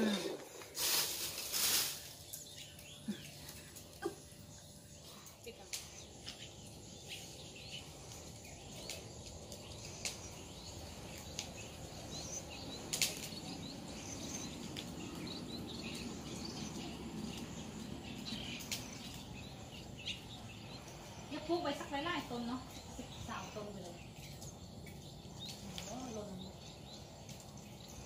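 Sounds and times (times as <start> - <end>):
birds chirping faintly: 0.0 - 28.0
leaves rustling: 0.0 - 28.0.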